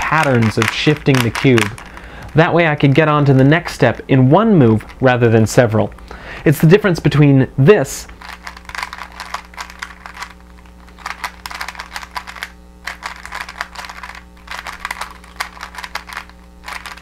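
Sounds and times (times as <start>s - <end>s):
puzzle cube clicking: 0.0s - 4.0s, 8.1s - 17.0s.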